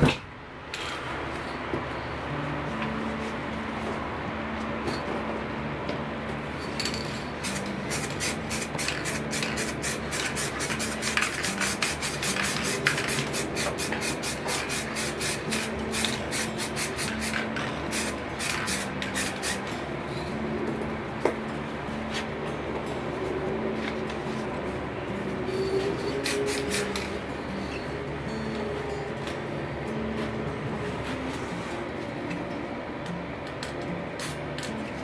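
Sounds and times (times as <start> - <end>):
spray paint can hissing: 7.4 - 19.7, 26.0 - 27.1, 34.2 - 34.7.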